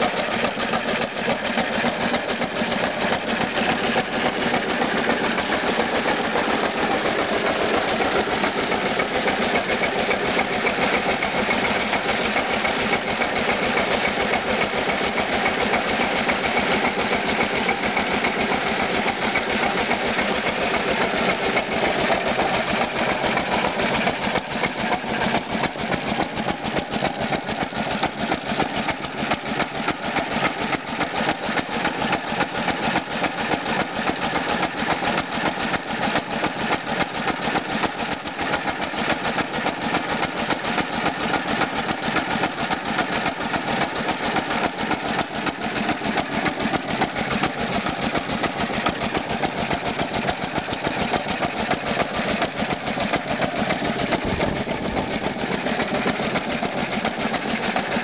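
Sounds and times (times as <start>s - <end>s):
engine running with rapid knock: 0.0s - 58.0s
plunger pump pumping water: 0.0s - 58.0s.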